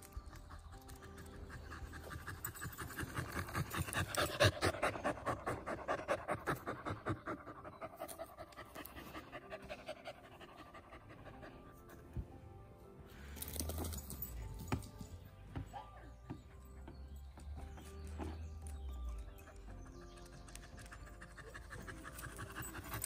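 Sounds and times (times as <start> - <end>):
dog panting: 0.2 - 11.8, 19.3 - 23.0.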